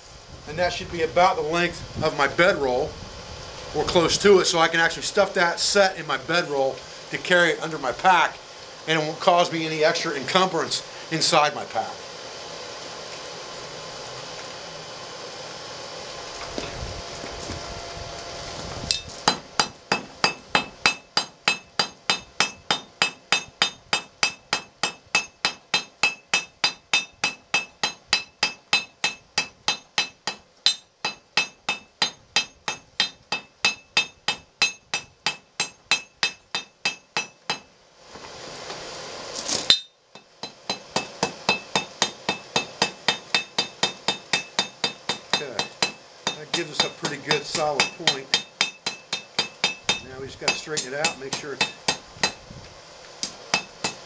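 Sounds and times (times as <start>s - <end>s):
steady rushing hiss: 0.0s - 54.0s
hammer ringing on anvil: 18.9s - 37.7s, 39.7s - 52.4s.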